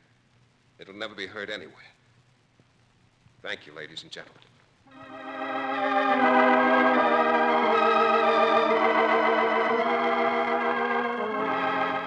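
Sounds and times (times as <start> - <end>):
organ chords with tremolo: 4.9 - 12.0.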